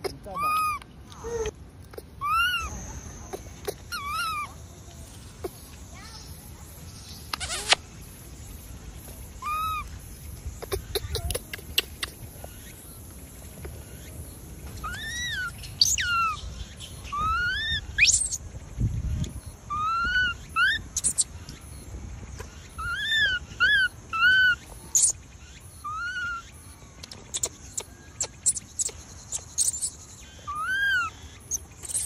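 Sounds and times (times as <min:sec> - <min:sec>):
macaques cooing: 0:00.0 - 0:05.7, 0:09.3 - 0:12.4, 0:14.8 - 0:16.4, 0:22.7 - 0:25.1, 0:25.8 - 0:29.8, 0:30.5 - 0:32.0.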